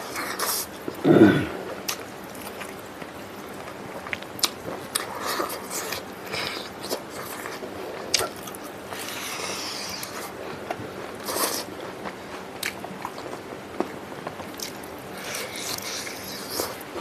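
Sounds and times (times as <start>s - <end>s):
person chewing: 0.0s - 17.0s.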